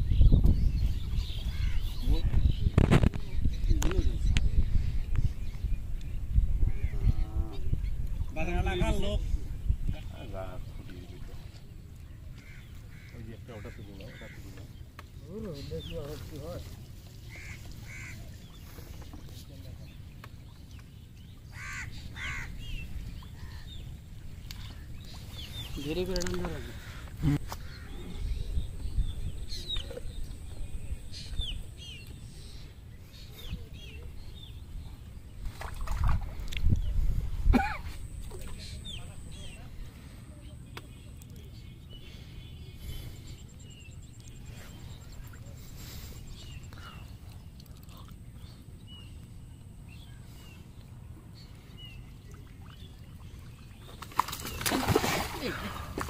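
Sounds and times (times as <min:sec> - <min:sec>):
small birds chirping: 0:00.0 - 0:56.0
water splashing into net: 0:54.0 - 0:56.0.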